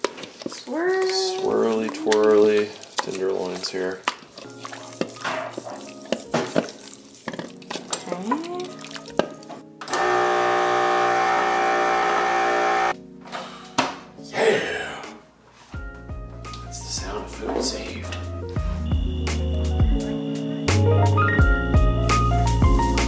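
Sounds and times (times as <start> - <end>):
vacuum sealer pump running: 9.9 - 13.0.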